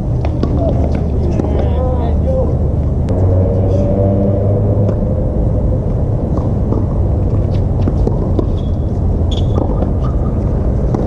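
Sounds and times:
low outdoor rumble: 0:00.0 - 0:11.0
tennis ball struck by rackets: 0:06.3 - 0:11.0
shoes squeaking on hard court: 0:08.0 - 0:10.4.

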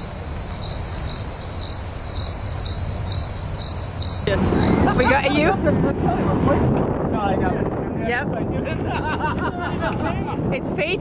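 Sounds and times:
crickets chirping: 0:00.0 - 0:05.4
low wind rumble: 0:00.0 - 0:11.0.

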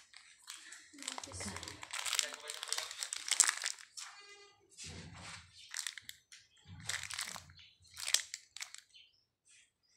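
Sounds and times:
biscuit crunching: 0:00.0 - 0:04.1, 0:05.7 - 0:08.9.

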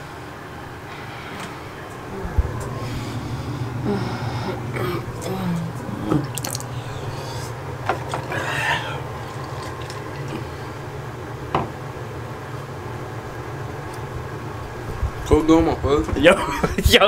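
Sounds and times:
steady low hum: 0:00.0 - 0:17.0
sink tap running: 0:04.9 - 0:08.3
water dripping: 0:05.1 - 0:07.1.

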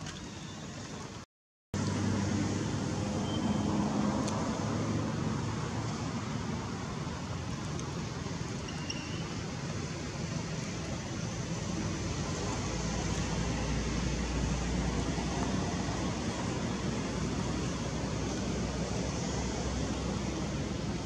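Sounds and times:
faint high chirp: 0:00.1 - 0:01.1, 0:03.2 - 0:03.7, 0:08.6 - 0:09.4.

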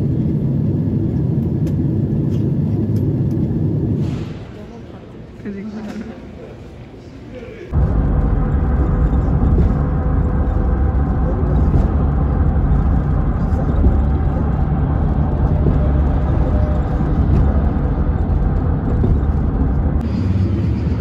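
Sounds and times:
road and engine rumble inside car: 0:07.7 - 0:21.0.

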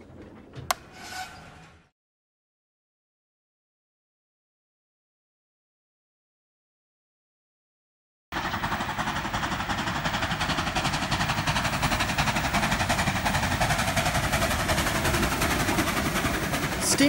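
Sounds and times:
low train rumble: 0:00.0 - 0:01.9, 0:08.4 - 0:17.0
steam locomotive exhaust beats: 0:08.4 - 0:17.0.

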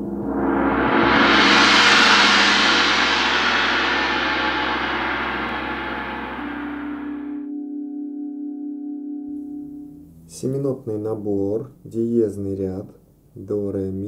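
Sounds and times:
gong: 0:00.0 - 0:10.6
low steady hum: 0:09.4 - 0:14.0.

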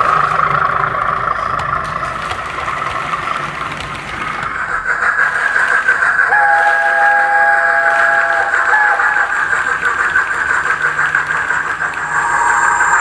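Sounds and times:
model train running: 0:00.0 - 0:13.0
steam locomotive whistle: 0:06.3 - 0:10.4, 0:11.6 - 0:13.0.

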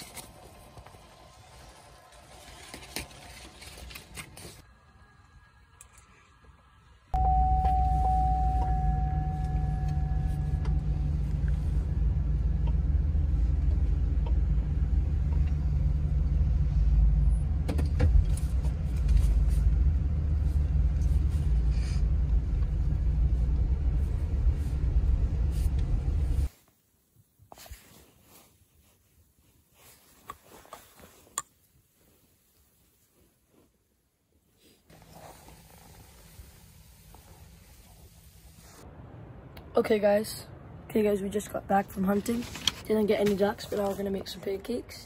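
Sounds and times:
engine and road rumble: 0:00.0 - 0:26.6, 0:34.6 - 0:45.0
clear steady tone: 0:07.1 - 0:11.6.

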